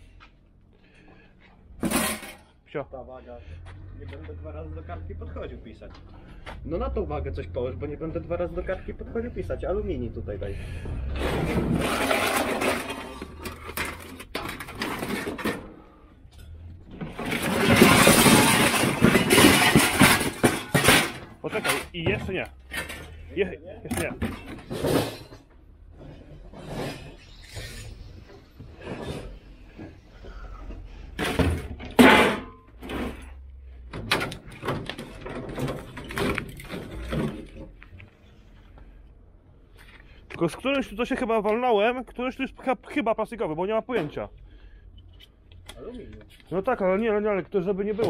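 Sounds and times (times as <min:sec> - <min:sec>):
scrap metal clattering and scraping: 0:01.6 - 0:02.7, 0:10.5 - 0:39.0.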